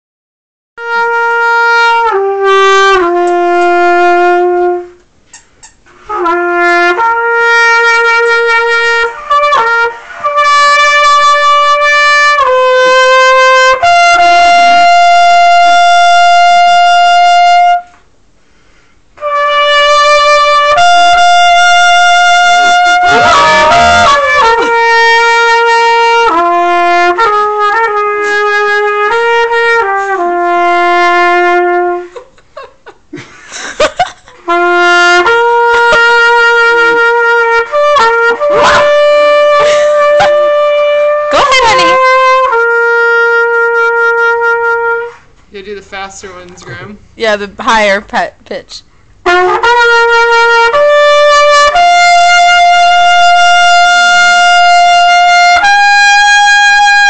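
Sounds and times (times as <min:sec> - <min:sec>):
trumpet playing long notes: 0:00.8 - 0:05.0, 0:06.0 - 0:18.0, 0:19.2 - 0:32.2, 0:34.4 - 0:45.2, 0:49.2 - 0:57.0
puppy howling: 0:23.0 - 0:24.7.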